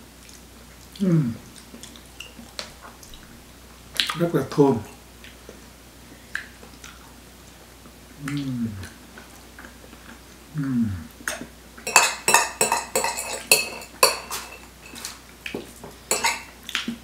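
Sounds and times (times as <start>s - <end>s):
person humming: 1.0s - 1.5s, 8.2s - 9.0s, 10.5s - 11.1s
forks clinking on plates: 11.3s - 15.2s, 16.1s - 16.5s.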